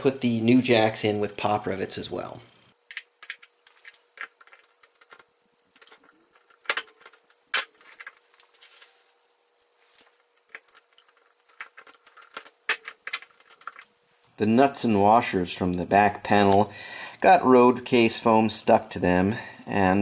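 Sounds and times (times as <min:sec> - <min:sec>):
rivets snapping: 0:02.9 - 0:09.0, 0:09.6 - 0:13.9.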